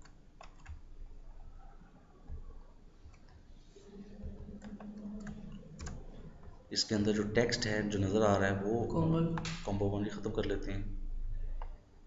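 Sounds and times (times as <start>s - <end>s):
computer mouse clicks: 0.0s - 0.8s, 4.3s - 6.6s
faint low hum: 0.0s - 12.0s.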